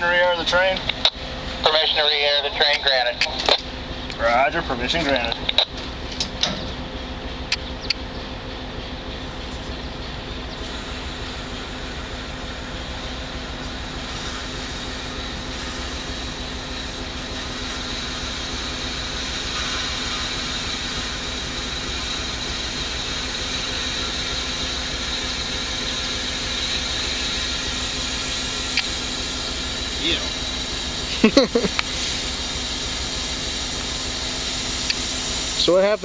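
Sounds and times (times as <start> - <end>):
compressed air hissing: 10.6 - 36.0.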